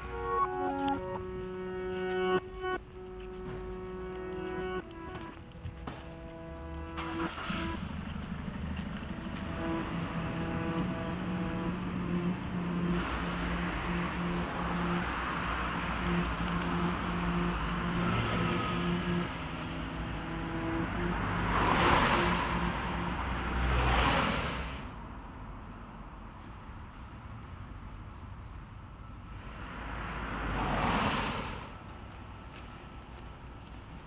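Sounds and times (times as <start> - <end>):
cars passing: 0.0 - 34.0
low pulsing hum: 1.0 - 23.6.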